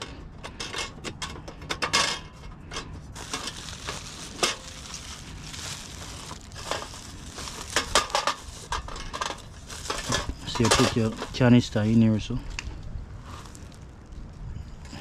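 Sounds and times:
bubble wrap crinkling: 3.1s - 12.0s, 12.6s - 14.2s.

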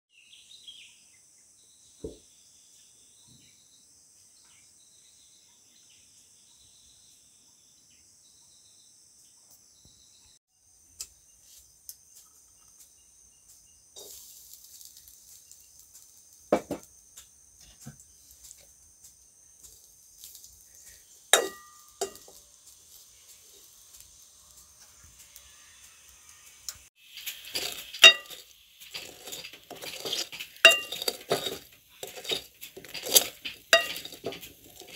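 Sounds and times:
spatula scraping a metal pan: 21.4s - 22.4s, 27.0s - 34.9s.

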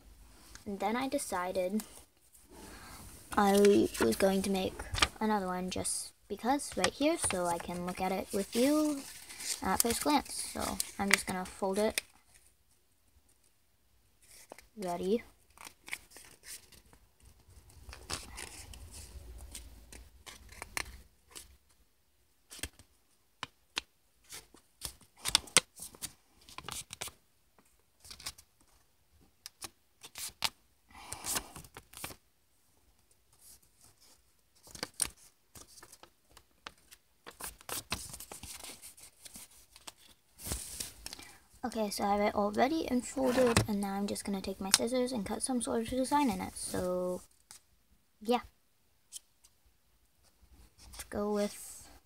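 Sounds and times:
paper being folded and creased: 3.3s - 5.4s, 6.4s - 12.6s, 14.2s - 14.8s, 15.4s - 21.7s, 22.5s - 28.8s, 31.2s - 32.2s, 33.0s - 41.2s, 42.6s - 43.7s.

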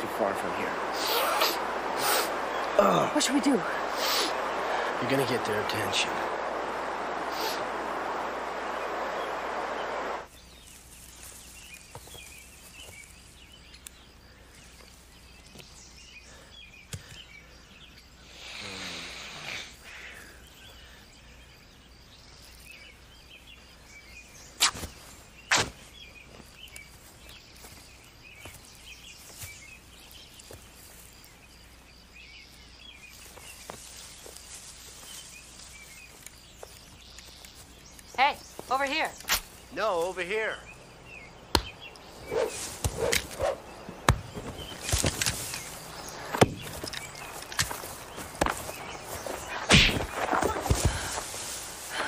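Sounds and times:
loud rush of noise: 0.0s - 10.3s
small birds chirping: 0.0s - 52.0s.

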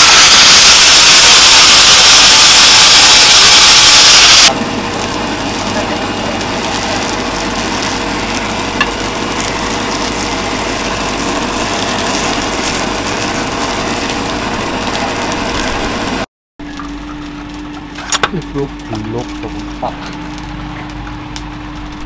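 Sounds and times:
air rushing through burning coals: 0.0s - 22.0s
blower motor humming: 0.0s - 22.0s.

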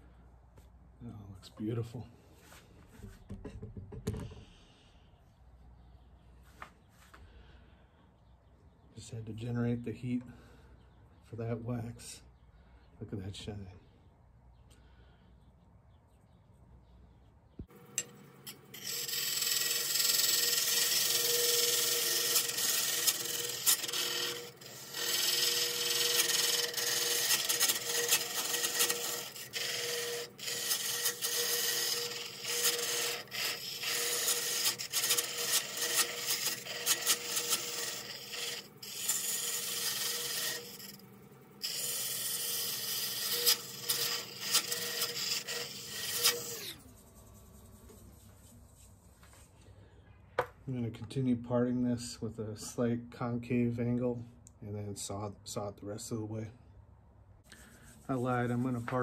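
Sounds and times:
lathe humming: 17.7s - 48.4s
lathe tool scraping wood: 18.0s - 48.9s.

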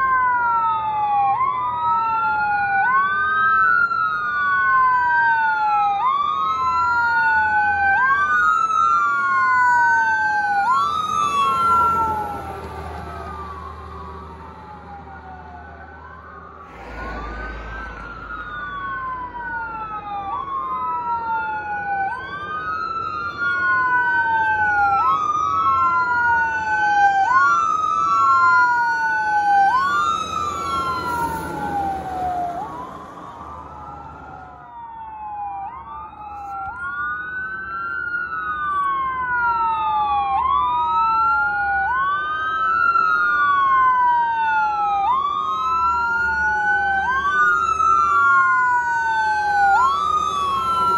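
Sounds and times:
fire truck engine and tyres passing: 0.0s - 50.9s
fire truck sirens wailing: 0.0s - 50.9s.

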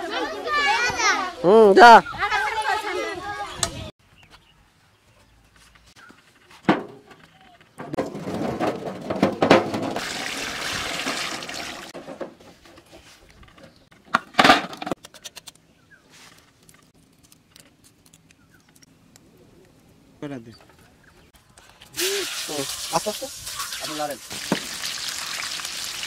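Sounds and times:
water splashing onto eggs: 10.0s - 12.0s, 22.0s - 26.0s
eggshell crackling: 21.9s - 26.0s.

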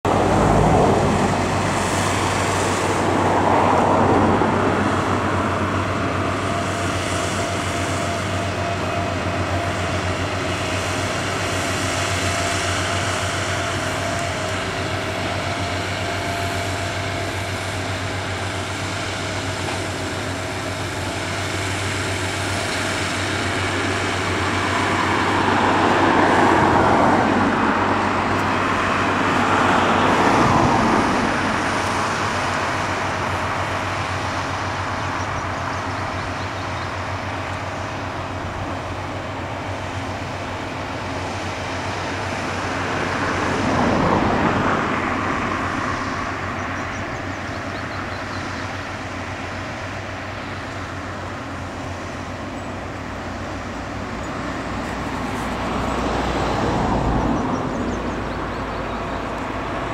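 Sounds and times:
mower engine running: 0.0s - 59.9s.

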